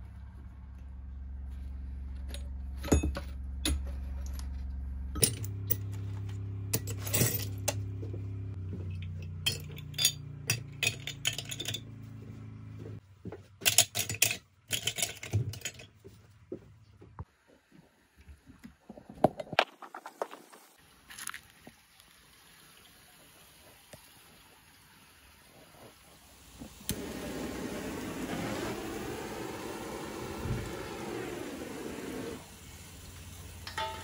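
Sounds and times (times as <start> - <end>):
low steady hum: 0.0 - 19.1
metal pieces clinking into crucible: 5.2 - 6.0, 6.7 - 7.8, 8.9 - 11.9, 13.6 - 15.9, 33.6 - 34.0.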